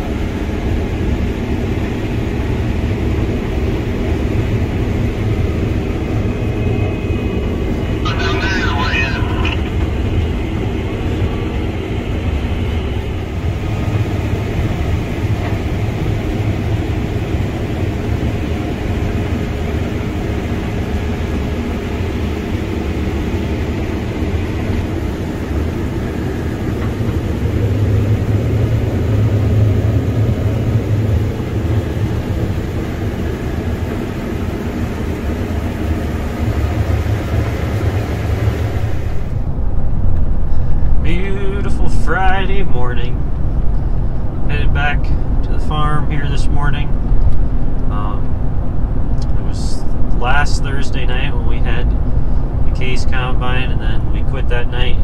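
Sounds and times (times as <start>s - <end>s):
combine harvester drone: 0.0s - 55.0s
dull vehicle sound: 0.0s - 55.0s.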